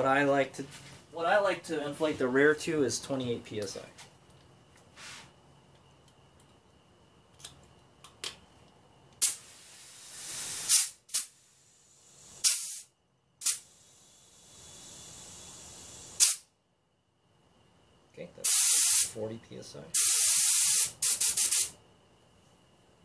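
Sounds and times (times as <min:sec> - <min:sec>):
compressed air hissing: 0:04.9 - 0:05.3, 0:09.2 - 0:16.5, 0:18.4 - 0:19.2, 0:19.9 - 0:21.8.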